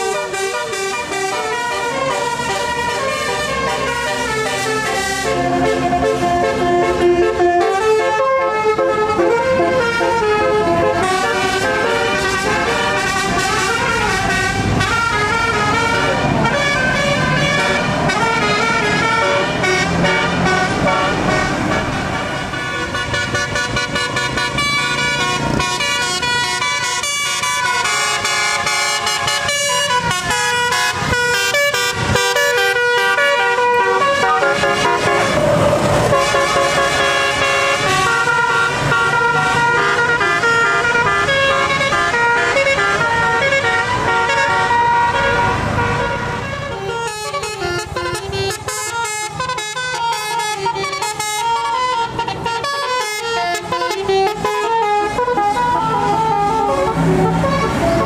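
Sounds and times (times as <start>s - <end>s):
bus engines running low: 0.0s - 58.0s
musical air horns playing tunes: 0.0s - 58.0s.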